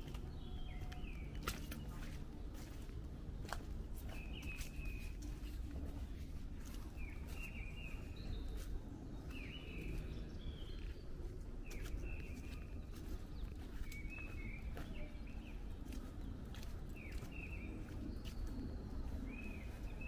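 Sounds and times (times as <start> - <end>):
footsteps on a path: 0.0 - 20.0
low outdoor rumble: 0.0 - 20.0
bird chirping: 3.4 - 20.0.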